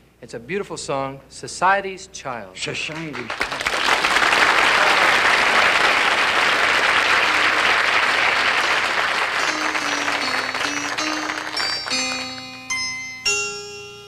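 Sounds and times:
audience applauding: 0:02.8 - 0:12.7
soft musical notes: 0:08.5 - 0:14.0.

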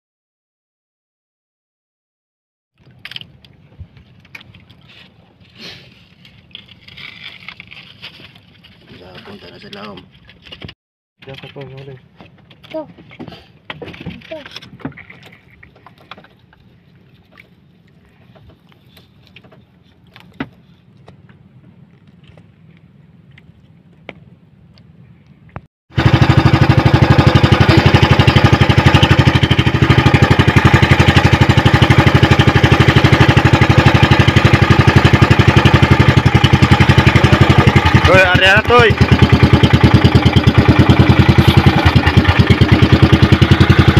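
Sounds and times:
boat engine running: 0:25.9 - 0:43.9.

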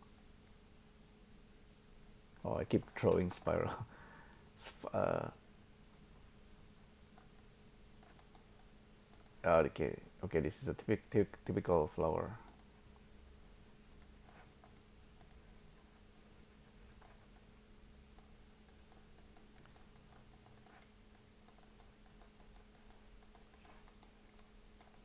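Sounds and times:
faint steady hum: 0:00.0 - 0:25.0
computer mouse clicking: 0:07.2 - 0:09.4, 0:11.6 - 0:12.7, 0:14.2 - 0:15.4, 0:17.0 - 0:17.5, 0:18.2 - 0:25.0.

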